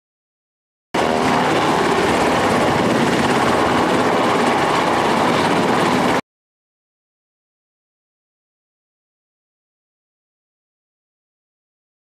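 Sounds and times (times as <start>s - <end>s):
helicopter rotor and turbine: 1.0s - 6.2s.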